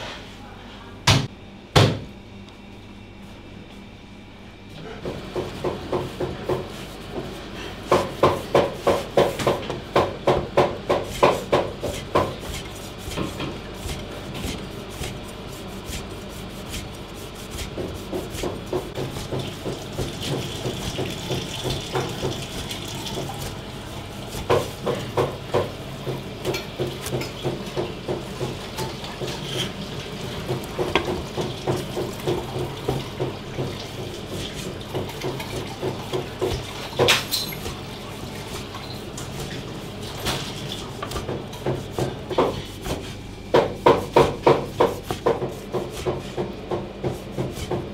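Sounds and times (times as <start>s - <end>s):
steady low hum: 0.0s - 31.2s
cleaver chopping on cutting board: 7.9s - 15.2s, 17.5s - 22.4s, 24.3s - 28.6s, 43.6s - 47.9s.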